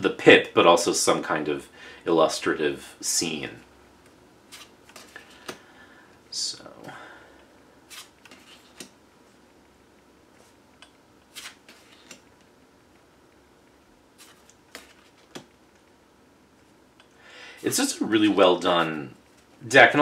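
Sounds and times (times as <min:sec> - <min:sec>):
cards sliding and tapping: 0:04.5 - 0:05.6, 0:07.9 - 0:09.0, 0:10.4 - 0:12.5, 0:14.2 - 0:16.0.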